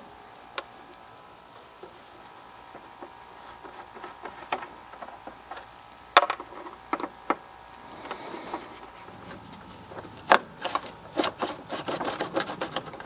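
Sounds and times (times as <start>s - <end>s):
hand tools clicking and knocking: 10.0s - 13.0s.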